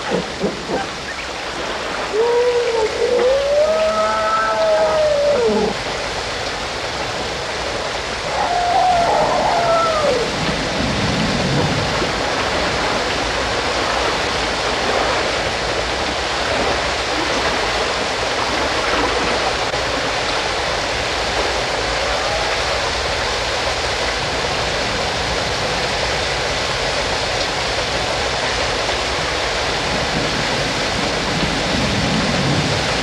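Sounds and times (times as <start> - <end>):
steady rushing noise: 0.0 - 33.0
animal call rising and falling: 2.1 - 5.8, 8.3 - 10.3.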